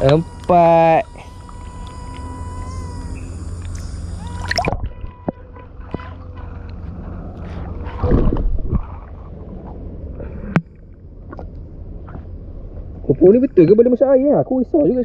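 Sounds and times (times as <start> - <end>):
steady low rumble: 0.0 - 15.0
muffled water sloshing and gurgling: 3.3 - 13.7.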